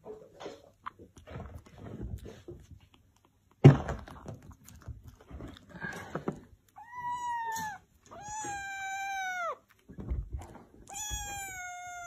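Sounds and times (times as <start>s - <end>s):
kitten meowing: 6.8s - 9.7s, 10.8s - 12.0s.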